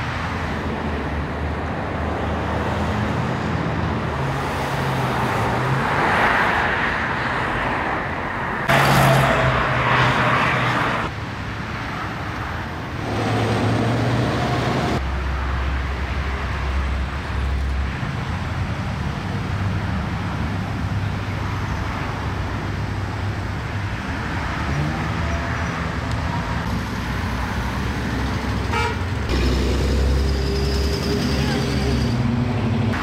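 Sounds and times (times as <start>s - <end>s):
cars driving past on highway: 0.0s - 33.0s.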